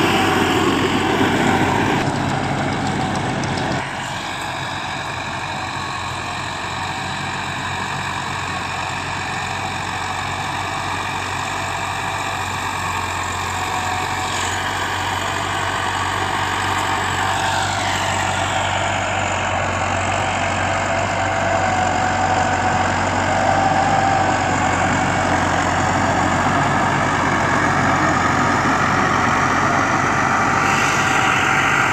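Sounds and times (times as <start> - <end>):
rotary tiller: 0.0 - 8.7
tractor diesel engine under load: 0.0 - 31.9.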